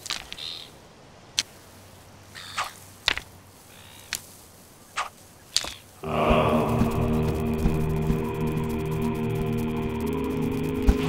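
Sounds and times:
music with held notes: 6.1 - 11.0.

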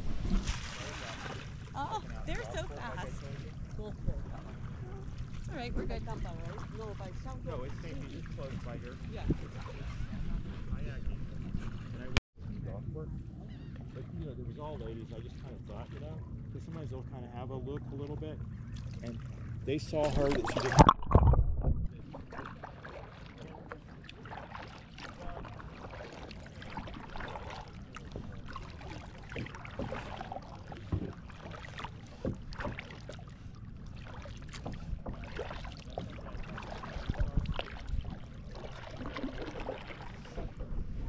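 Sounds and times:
paddle splashes and drips: 0.0 - 12.2, 17.7 - 41.0
wind rumble on microphone: 0.0 - 13.6, 19.6 - 22.4, 36.0 - 41.0.

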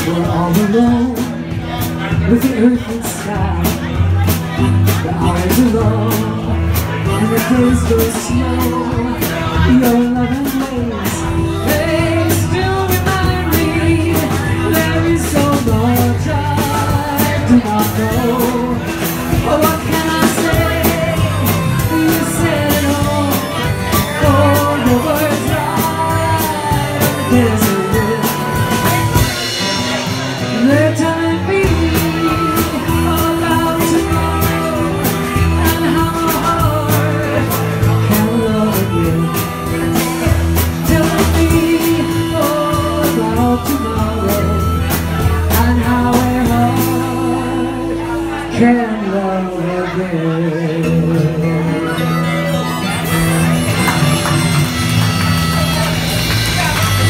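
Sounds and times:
drums: 0.0 - 57.0
electric bass: 0.0 - 57.0
strummed acoustic guitar: 0.0 - 57.0
harmonica lead line: 4.1 - 48.5, 51.3 - 57.0.

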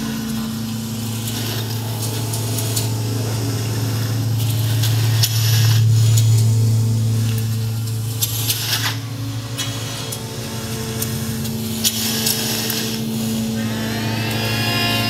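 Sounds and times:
low drone: 0.0 - 15.0.

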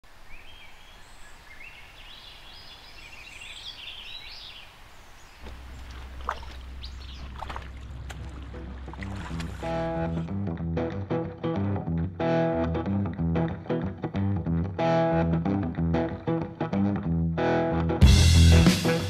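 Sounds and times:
songbird warbling: 0.3 - 9.0
river water rumble: 2.4 - 10.4
boots wading through water: 5.4 - 10.3.

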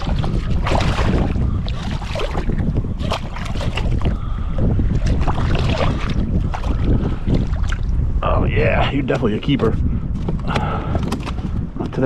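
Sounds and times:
fish splashing at the surface: 0.0 - 4.0
wind buffeting the microphone: 0.0 - 12.0.

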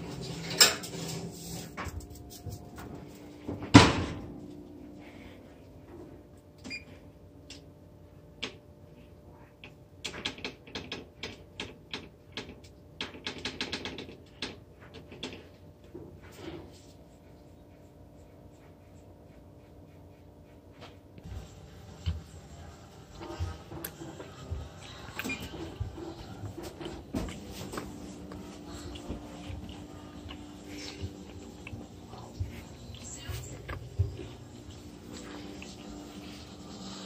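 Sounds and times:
oven door banging shut: 3.7 - 4.3.

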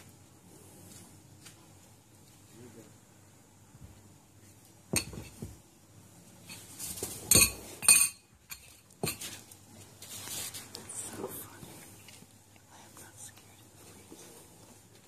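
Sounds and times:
crockery and cutlery clinking: 4.9 - 5.5, 6.4 - 9.4.

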